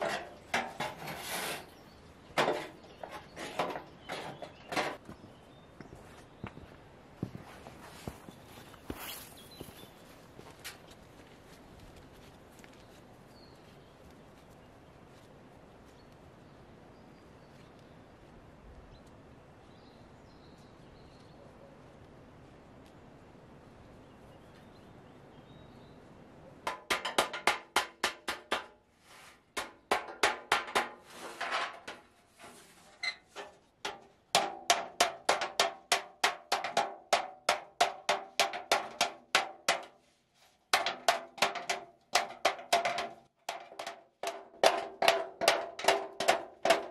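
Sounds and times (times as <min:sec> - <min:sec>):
outdoor background: 0:00.0 - 0:46.9
hammer striking sheet metal: 0:26.7 - 0:28.8, 0:29.6 - 0:31.0.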